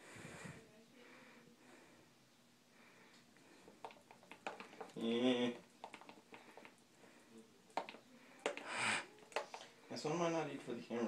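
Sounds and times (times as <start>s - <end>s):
light clicks and taps: 3.1s - 6.8s, 7.7s - 9.7s
breathy hiss: 8.3s - 9.2s.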